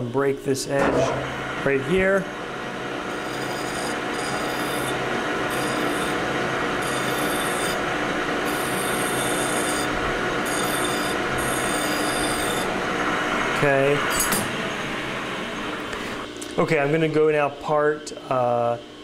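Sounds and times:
lathe running: 0:00.8 - 0:16.4
file rasping on spinning steel: 0:03.1 - 0:07.8, 0:08.5 - 0:12.8.

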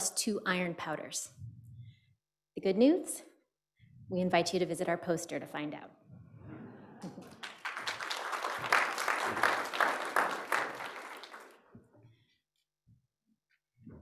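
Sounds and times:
audience applause: 0:07.0 - 0:11.6.

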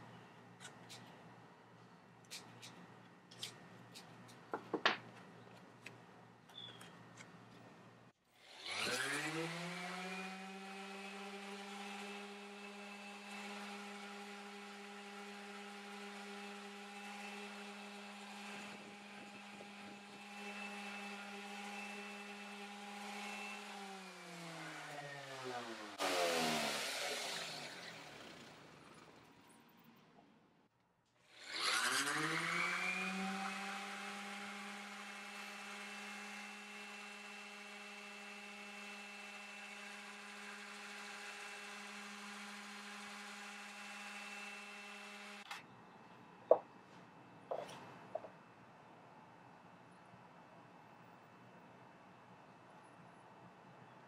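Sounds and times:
electric orbital sander running: 0:08.4 - 0:28.8, 0:31.4 - 0:45.5.

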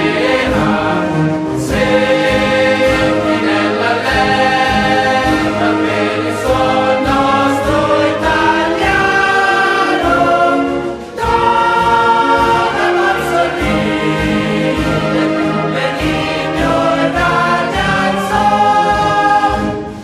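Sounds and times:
choir singing slow song: 0:00.0 - 0:20.0.

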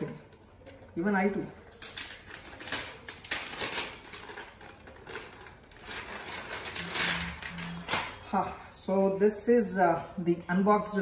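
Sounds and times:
plastic wrapping crinkling: 0:00.0 - 0:08.4.

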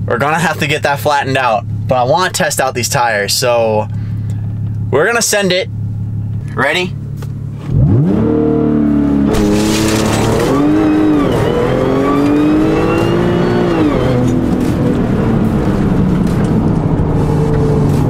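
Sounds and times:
car engine revving through upshifts: 0:07.5 - 0:18.0.

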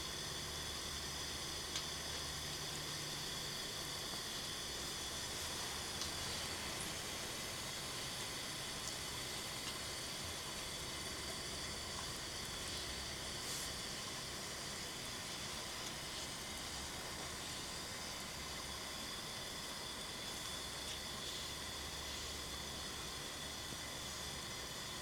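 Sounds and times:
fan heater hiss: 0:00.0 - 0:25.0.

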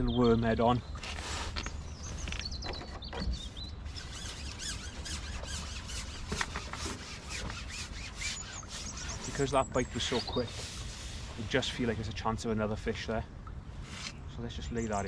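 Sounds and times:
fishing pole sections squeaking: 0:01.0 - 0:11.0.

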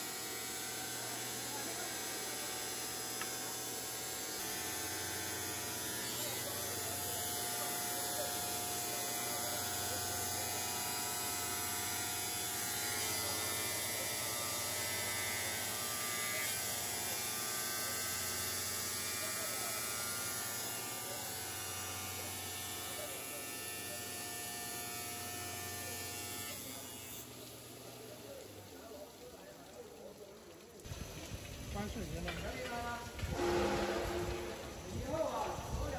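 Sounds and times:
tile cutting machine humming: 0:00.0 - 0:27.6.

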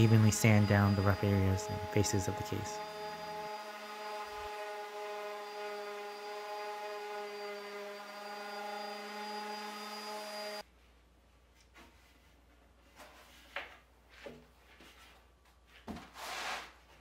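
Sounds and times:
electric sander whining and hissing: 0:00.0 - 0:10.6.

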